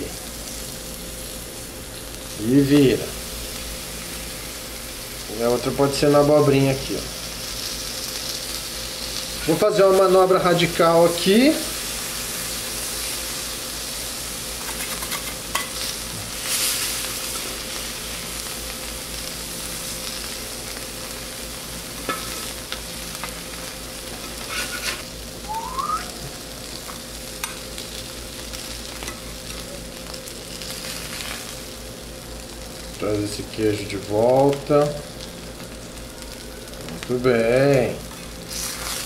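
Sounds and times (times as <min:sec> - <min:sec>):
food sizzling on a griddle: 0:00.0 - 0:39.0
metal spatulas scraping and tapping: 0:24.4 - 0:25.0.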